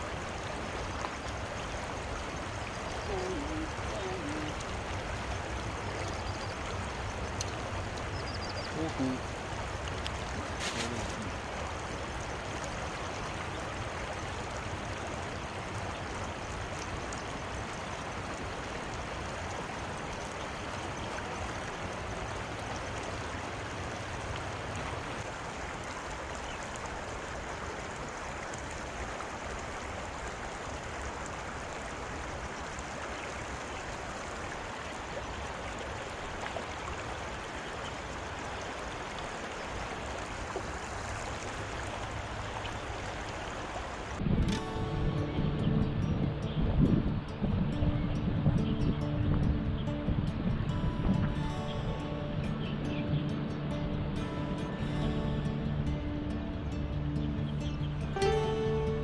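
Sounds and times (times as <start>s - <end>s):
shallow river rushing: 0.0s - 59.0s.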